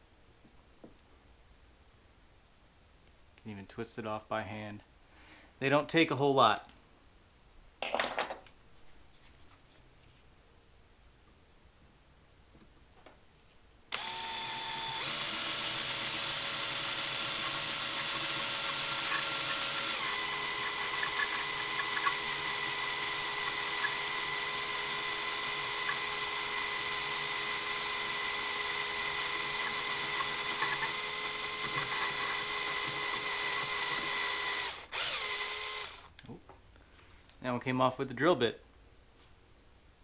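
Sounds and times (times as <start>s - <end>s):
cordless drill running: 13.9s - 36.1s
drill bit ticking: 13.9s - 36.1s.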